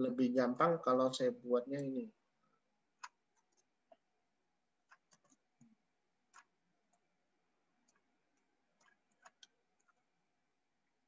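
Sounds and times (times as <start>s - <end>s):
mouse and keyboard clicks: 3.0s - 4.0s, 4.8s - 7.0s, 7.8s - 10.0s.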